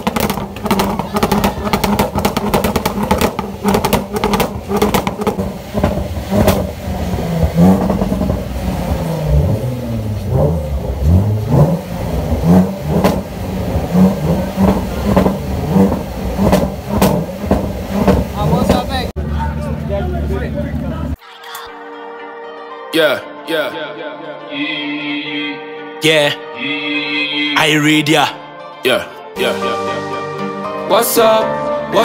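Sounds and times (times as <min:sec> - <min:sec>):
car engine revving: 0:00.0 - 0:21.2.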